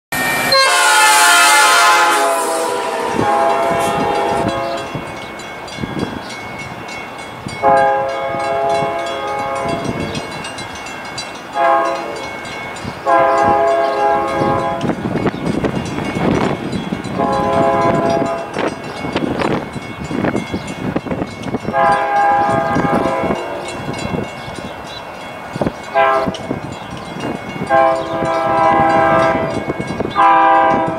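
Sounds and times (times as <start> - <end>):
train air horn blasts: 0.2 - 5.2, 7.6 - 10.2, 11.6 - 12.3, 13.0 - 15.0, 17.1 - 18.8, 21.7 - 23.8, 26.0 - 26.5, 27.6 - 30.9
train rumble: 0.2 - 30.9.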